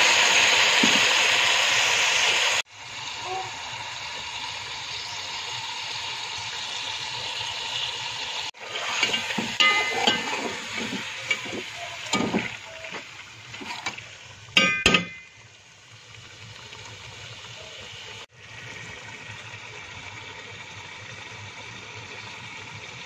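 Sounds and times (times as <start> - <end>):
chicken sizzling in a pot: 0.0 - 23.0
metal spoon clinking on a pot: 9.0 - 12.6, 14.6 - 15.4.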